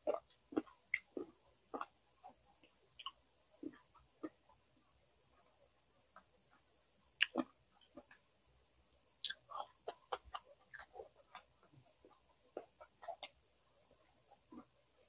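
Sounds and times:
person chewing crunchy food: 0.0s - 2.4s, 7.2s - 8.2s, 9.2s - 13.4s.

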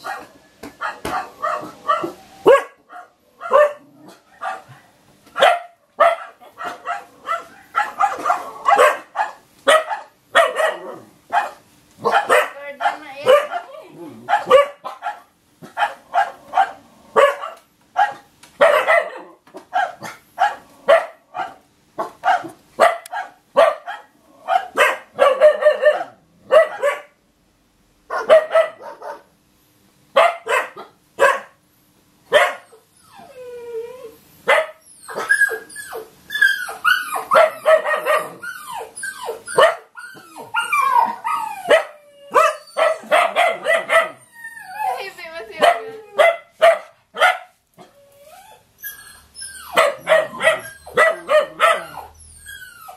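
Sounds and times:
dog barking: 0.0s - 27.2s, 28.1s - 29.3s, 30.1s - 31.6s, 32.3s - 32.7s, 34.5s - 35.3s, 37.3s - 38.4s, 39.6s - 39.9s, 41.7s - 44.2s, 45.6s - 47.6s, 49.8s - 52.1s
dog whining and yelping: 32.6s - 46.8s, 47.8s - 52.9s.

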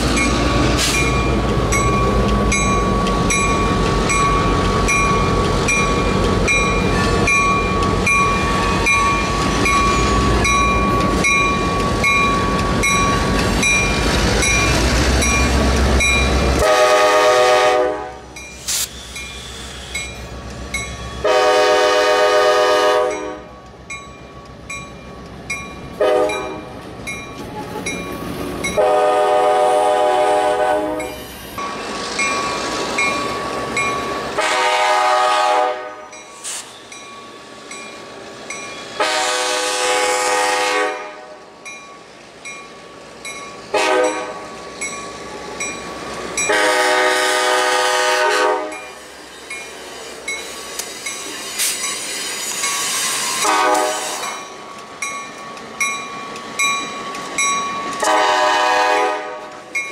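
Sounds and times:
locomotive engine and wheel rumble: 0.0s - 59.9s
locomotive bell ringing: 0.1s - 16.6s, 18.3s - 21.4s, 23.0s - 28.9s, 31.0s - 34.4s, 36.0s - 39.1s, 41.6s - 46.8s, 48.7s - 53.5s, 54.2s - 58.2s, 59.7s - 59.9s
train air horn blasts: 16.6s - 18.3s, 21.2s - 23.5s, 26.0s - 26.7s, 28.8s - 31.1s, 34.4s - 36.0s, 39.0s - 41.3s, 43.7s - 44.4s, 46.5s - 48.8s, 53.4s - 54.2s, 58.0s - 59.6s.

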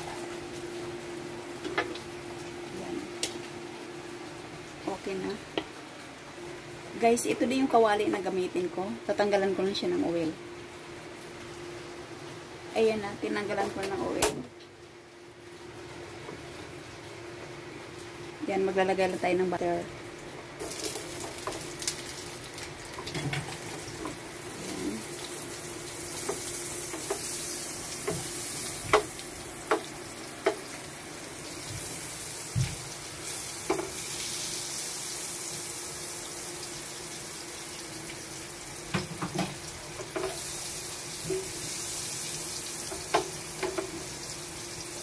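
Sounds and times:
butter sizzling in a frying pan: 20.0s - 45.0s
spatula knocking and scraping pan: 26.2s - 27.3s, 33.6s - 34.0s, 39.0s - 40.4s.

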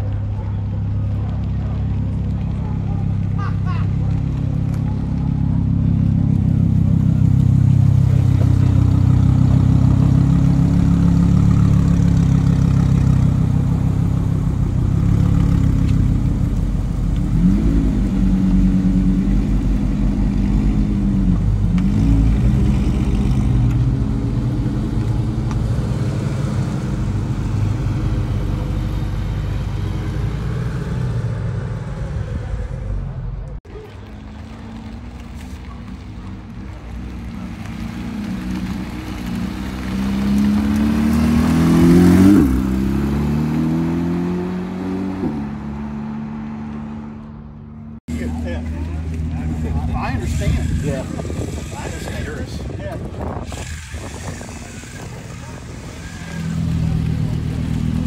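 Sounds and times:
sports car engine revving: 5.6s - 33.2s.

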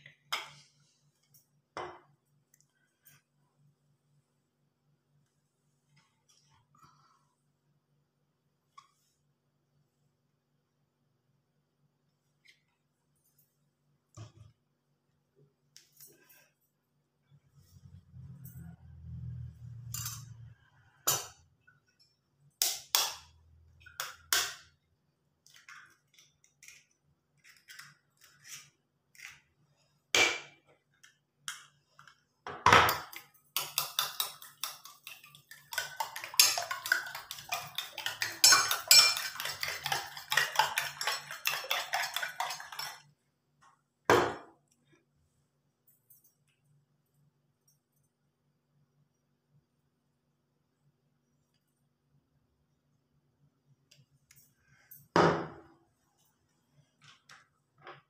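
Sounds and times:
spoon beating egg in metal bowl: 32.9s - 43.2s.

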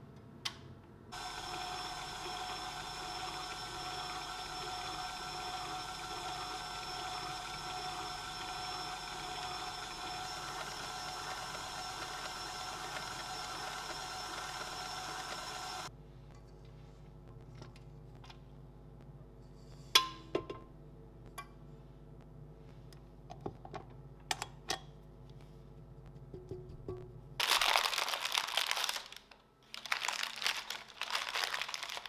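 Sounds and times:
stand mixer motor running: 1.2s - 15.9s
whisk beating in steel bowl: 1.2s - 15.9s.

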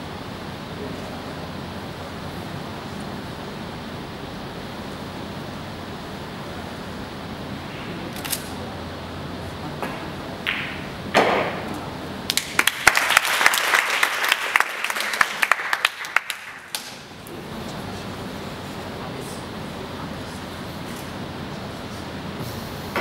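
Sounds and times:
audience applause: 12.3s - 16.9s.

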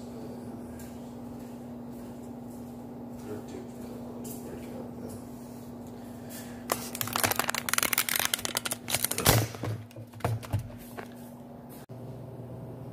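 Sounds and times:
steady low hum: 0.0s - 12.9s
phone handling clicks and rustles: 7.0s - 11.2s.

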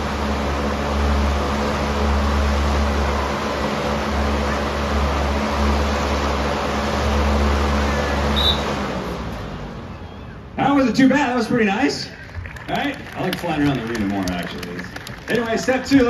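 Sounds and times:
electric fan humming: 0.0s - 9.2s.

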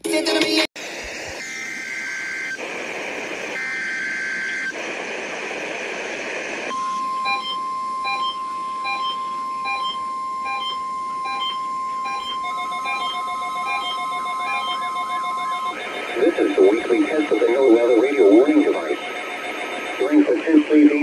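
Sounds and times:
static hiss: 0.8s - 8.5s, 15.7s - 21.0s
alarm beeping: 6.7s - 21.0s
warbling two-tone data bursts: 6.7s - 21.0s
steady alert tone: 6.8s - 20.4s.

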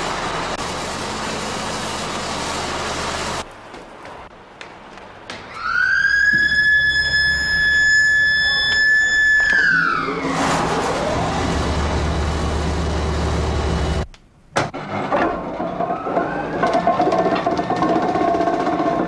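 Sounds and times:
siren wailing: 5.5s - 12.2s, 15.9s - 16.8s.

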